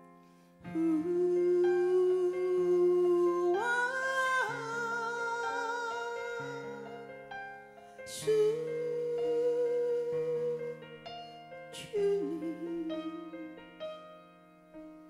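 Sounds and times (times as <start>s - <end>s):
held wavering sung note: 0.7s - 6.9s.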